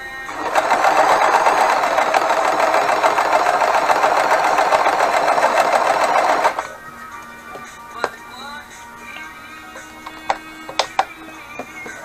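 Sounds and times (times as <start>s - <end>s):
sewing machine running: 0.0s - 6.8s.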